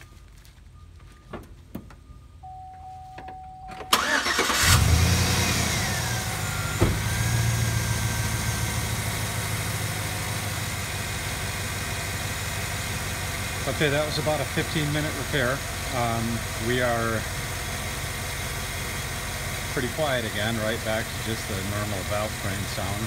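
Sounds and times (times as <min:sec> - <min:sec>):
car engine idling: 0:00.0 - 0:23.0
car engine cranking and starting: 0:01.4 - 0:23.0.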